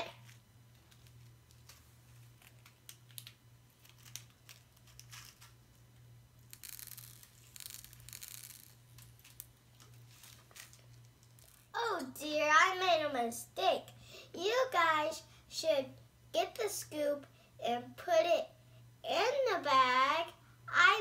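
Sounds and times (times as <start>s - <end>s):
packet crinkling: 0.2s - 11.7s
packet tearing: 2.4s - 5.6s, 6.5s - 9.5s.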